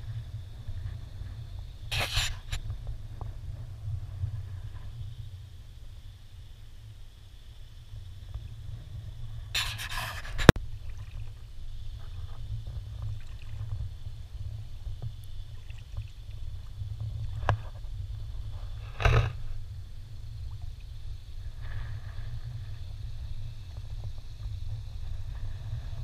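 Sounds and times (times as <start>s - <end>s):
low wind rumble: 0.0s - 26.0s
water splashing: 10.7s - 13.9s, 15.3s - 17.5s.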